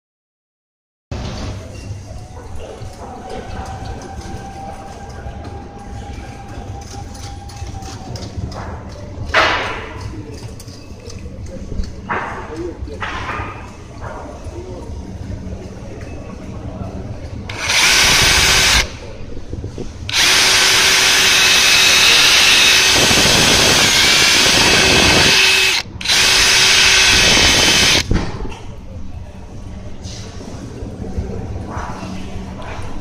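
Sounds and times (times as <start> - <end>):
cordless drill running: 17.5 - 18.9, 20.1 - 28.0.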